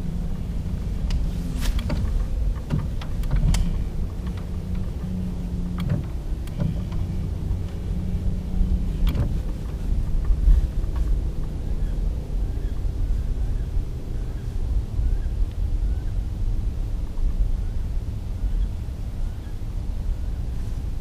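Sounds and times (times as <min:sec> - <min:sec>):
boat motor humming: 0:00.0 - 0:21.0
low rumble: 0:00.0 - 0:21.0
sharp clicks: 0:01.8 - 0:07.8.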